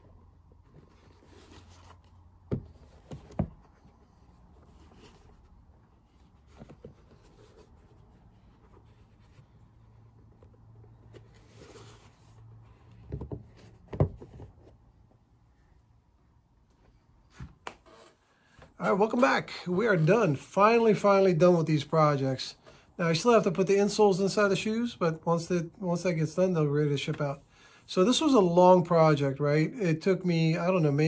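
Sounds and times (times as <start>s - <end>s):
soft rubbing strokes: 0.0s - 12.9s.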